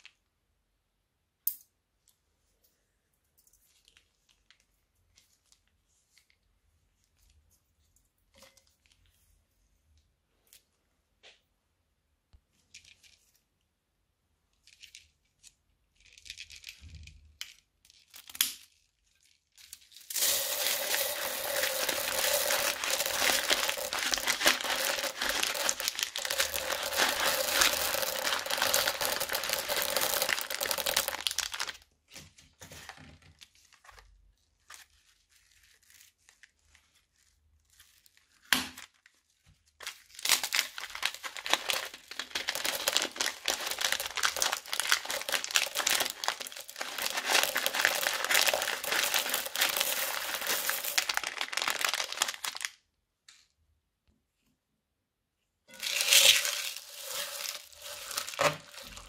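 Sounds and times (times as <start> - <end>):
plastic bags crinkling: 17.9 - 31.9, 32.6 - 52.8, 55.7 - 59.0.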